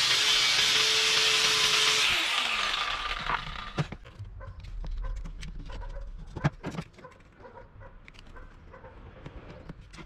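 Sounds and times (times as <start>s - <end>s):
angle grinder spinning down: 0.0s - 3.9s.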